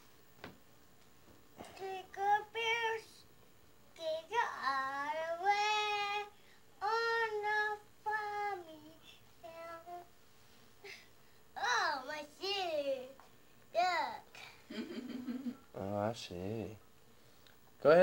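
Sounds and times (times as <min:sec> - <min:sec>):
toddler girl singing: 0:01.6 - 0:03.2, 0:04.0 - 0:10.1, 0:11.6 - 0:13.2.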